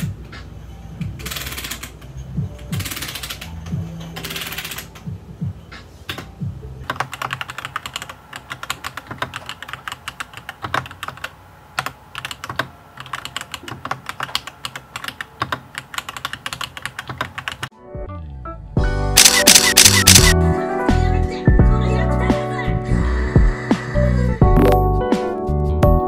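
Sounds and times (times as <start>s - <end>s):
background music: 0.0s - 8.0s, 17.7s - 26.0s
mechanical keyboard typing: 2.7s - 3.5s, 4.2s - 5.0s, 6.8s - 17.7s, 19.2s - 20.3s.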